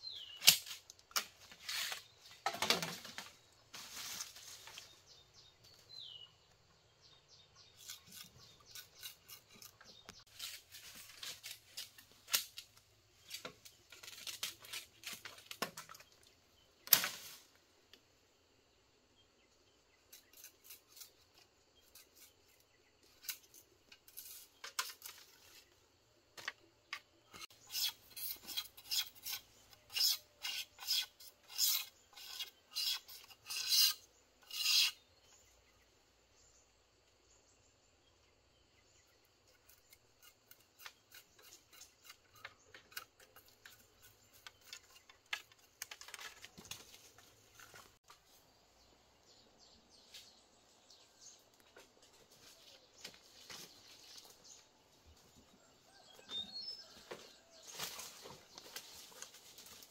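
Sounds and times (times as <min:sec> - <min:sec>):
blade rasping during sharpening: 0:27.6 - 0:35.0.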